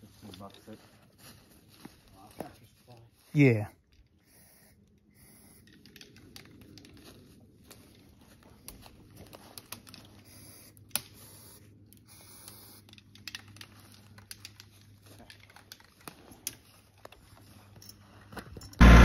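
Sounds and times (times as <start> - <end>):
footsteps crunching through leaves and snow: 0.0 - 3.2.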